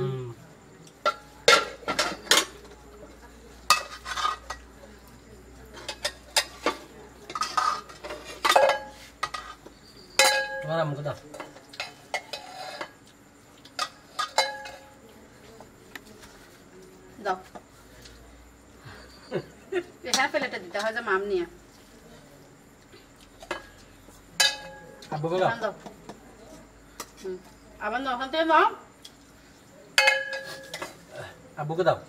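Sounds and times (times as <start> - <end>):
metal pot lids clanking: 3.7 - 4.6, 10.2 - 10.7, 13.8 - 14.9, 24.4 - 24.8, 30.0 - 31.0.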